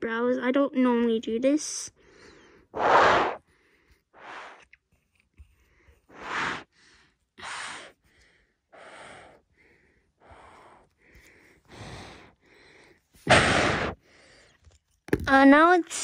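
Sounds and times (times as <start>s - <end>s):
person breathing: 2.0s - 4.6s, 5.5s - 14.8s.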